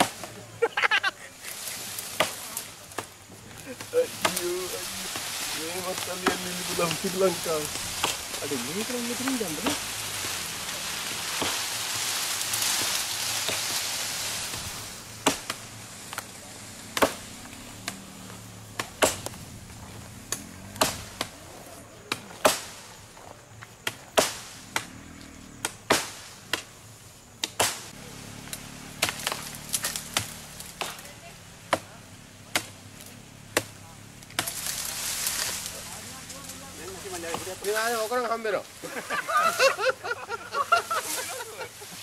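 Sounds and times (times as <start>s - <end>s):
branches rustling: 0.0s - 42.0s
axe chopping wood: 2.2s - 3.1s, 6.0s - 6.6s, 14.5s - 16.2s, 16.9s - 18.0s, 18.8s - 19.4s, 20.3s - 21.4s, 22.0s - 22.8s, 23.8s - 24.9s, 25.6s - 26.7s, 27.4s - 27.9s, 29.0s - 31.1s, 31.7s - 32.8s, 33.5s - 33.8s.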